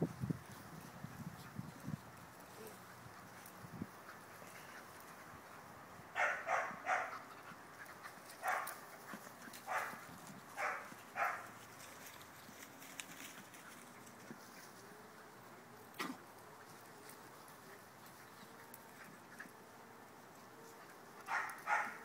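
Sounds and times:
puppies barking: 0:06.1 - 0:10.0, 0:10.6 - 0:11.6, 0:21.2 - 0:22.0.

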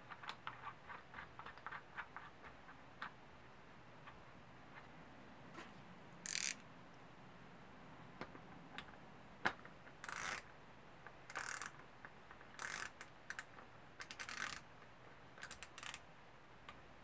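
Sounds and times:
rasping ratchet-like bursts: 0:06.2 - 0:06.6, 0:10.0 - 0:10.5, 0:11.3 - 0:11.8, 0:12.6 - 0:14.7, 0:15.4 - 0:16.0.

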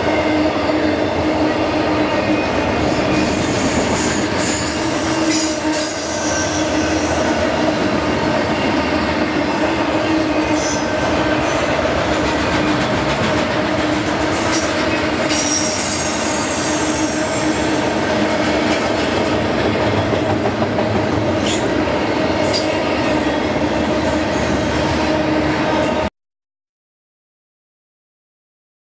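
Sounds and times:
train wheels rumbling on rail: 0:00.0 - 0:26.1
high wheel squeals: 0:01.1 - 0:07.4, 0:14.3 - 0:17.7.

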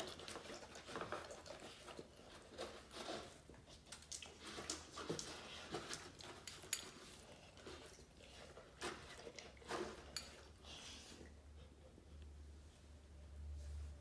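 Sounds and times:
dog chewing wet food: 0:00.0 - 0:10.5.

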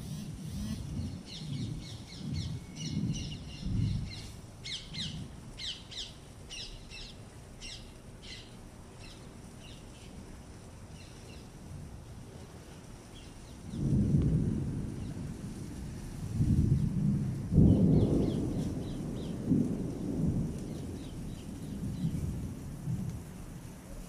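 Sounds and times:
small birds chirping: 0:00.0 - 0:10.2
wind buffeting microphone: 0:00.0 - 0:24.0.

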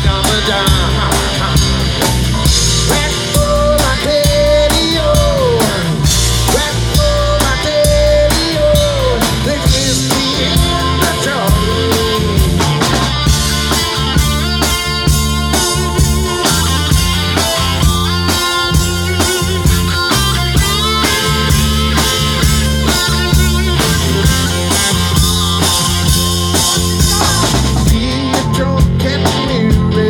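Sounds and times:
live rock band playing: 0:00.0 - 0:30.0
steady drum beat: 0:00.0 - 0:30.0
long bending lead notes: 0:10.3 - 0:28.0.

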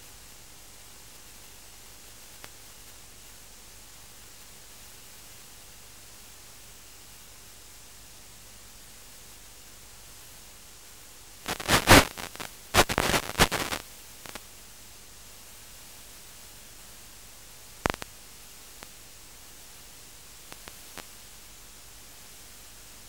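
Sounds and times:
static hiss: 0:00.0 - 0:23.0
loud crackling: 0:11.5 - 0:14.4, 0:17.8 - 0:18.1.

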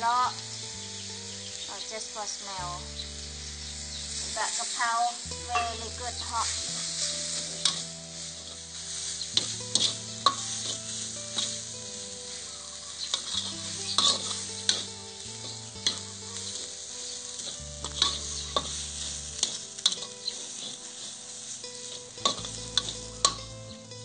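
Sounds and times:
oil sizzling in a wok: 0:00.0 - 0:24.0
metal spatula scraping a pan: 0:03.2 - 0:23.5.

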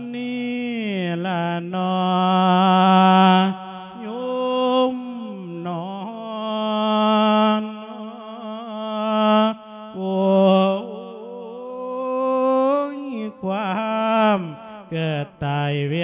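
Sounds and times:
man chanting into a microphone: 0:00.0 - 0:16.0
breaths: 0:09.6 - 0:09.9, 0:14.6 - 0:15.0.

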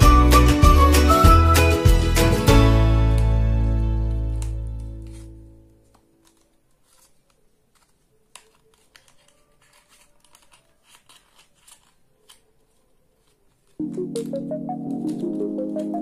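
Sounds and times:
paper being folded: 0:04.1 - 0:16.0.

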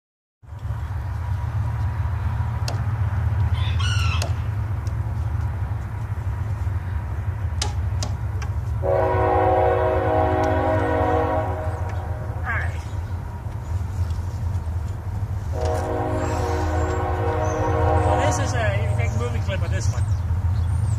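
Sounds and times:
low rumble: 0:04.4 - 0:20.7
train horn chord: 0:08.8 - 0:12.6, 0:15.5 - 0:19.5
bird chirp: 0:11.6 - 0:14.9, 0:16.7 - 0:18.2, 0:18.8 - 0:20.9.

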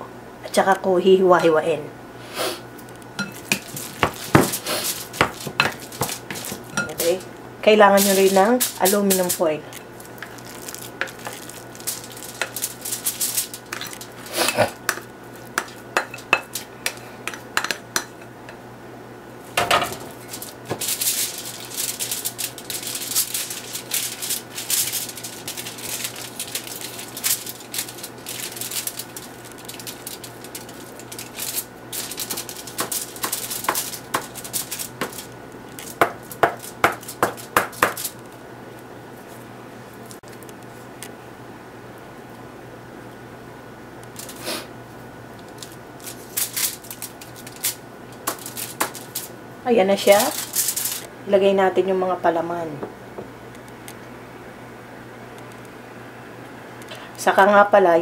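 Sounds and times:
patting food onto crinkling foil: 0:02.6 - 0:18.6, 0:19.4 - 0:41.2, 0:44.0 - 0:44.7, 0:45.3 - 0:51.2.

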